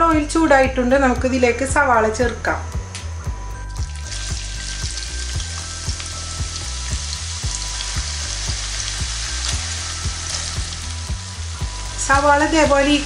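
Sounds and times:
onions sizzling in hot oil: 0:03.7 - 0:13.0.

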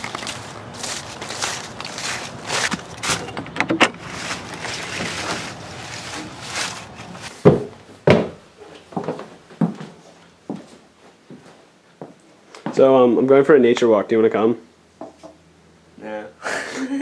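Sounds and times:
footsteps through dry leaves: 0:00.0 - 0:03.3, 0:04.0 - 0:07.4.

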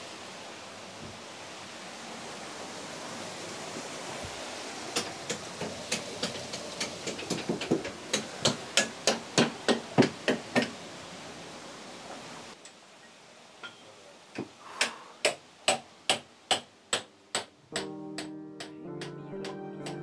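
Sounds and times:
hammer striking iron wedge: 0:14.4 - 0:20.0.

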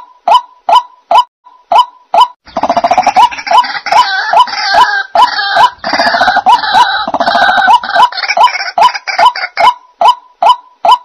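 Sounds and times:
birds croaking chorus: 0:02.4 - 0:09.6.

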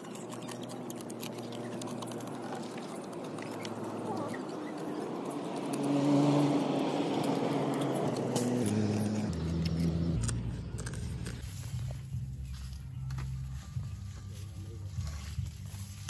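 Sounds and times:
crab shells cracking: 0:00.0 - 0:04.0
vehicle engine running: 0:00.0 - 0:16.0.

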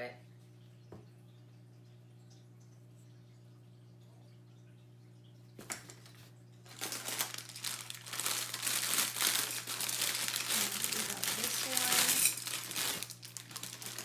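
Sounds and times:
plastic bag crinkling: 0:06.7 - 0:14.0.

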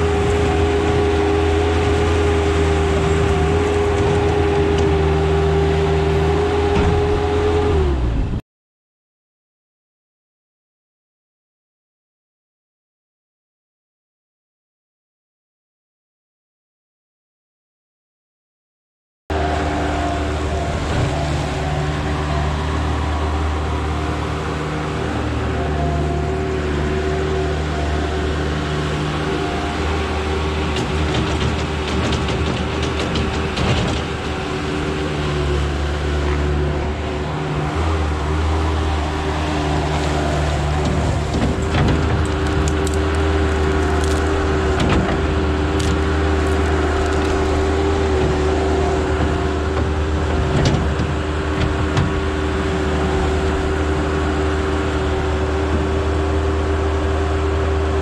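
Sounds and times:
diesel engine running under load: 0:00.0 - 0:08.4, 0:19.3 - 0:58.0
brush and roots cracking: 0:39.9 - 0:48.7.

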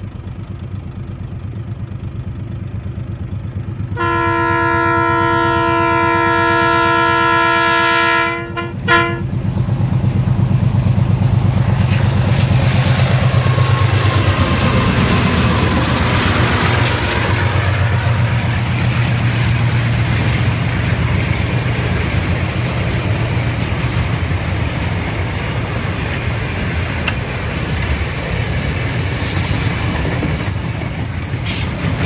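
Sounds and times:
diesel locomotive engine rumble: 0:00.0 - 0:32.0
train wheel noise: 0:00.0 - 0:32.0
train horn blast: 0:04.0 - 0:09.4.

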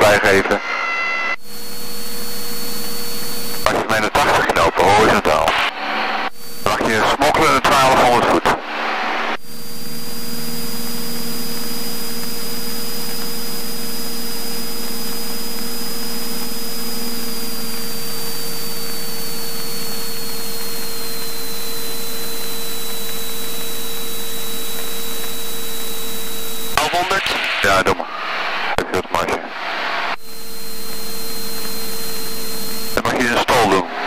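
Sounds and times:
thin high whine: 0:00.0 - 0:34.0
airplane engine and propeller: 0:01.4 - 0:28.2, 0:30.2 - 0:34.0.

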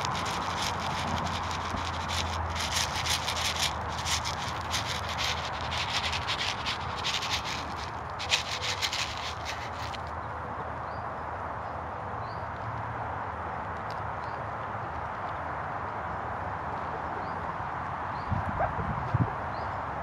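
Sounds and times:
grain pattering from a scoop: 0:00.0 - 0:10.1
hens pecking at grain: 0:00.0 - 0:10.1.

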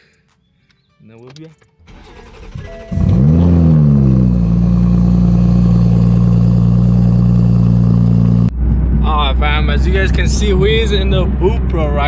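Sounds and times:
car engine cold start and idle: 0:01.8 - 0:12.0.

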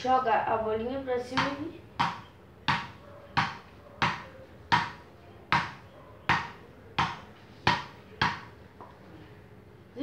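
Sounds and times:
ball tapping on paddle: 0:01.3 - 0:08.5.

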